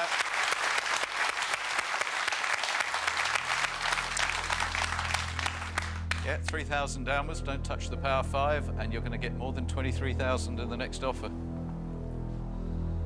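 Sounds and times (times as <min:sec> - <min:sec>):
audience clapping: 0:00.0 - 0:06.7.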